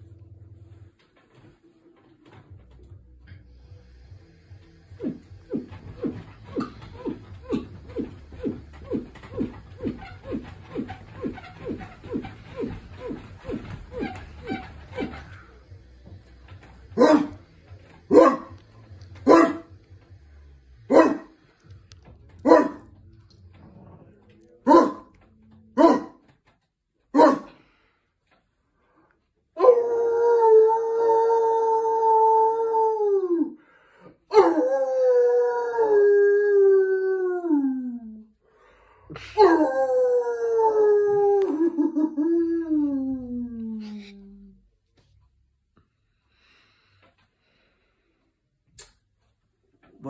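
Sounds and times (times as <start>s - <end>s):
man imitating dog barks: 24.6s - 25.1s, 25.8s - 26.2s, 27.1s - 27.5s
man howling like a dog: 29.6s - 33.6s, 34.3s - 38.2s, 39.4s - 44.0s.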